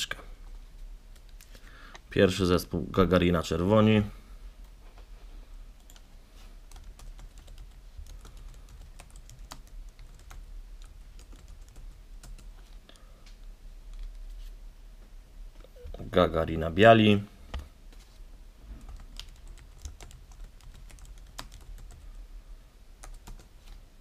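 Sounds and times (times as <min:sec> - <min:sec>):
keyboard typing: 0:06.7 - 0:12.6, 0:18.8 - 0:22.1, 0:23.0 - 0:23.5.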